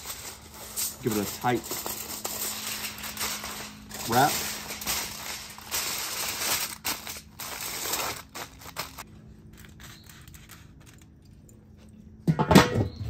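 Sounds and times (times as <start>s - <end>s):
aluminium foil crinkling: 0.0s - 12.0s
metal lid clanking: 12.2s - 13.0s.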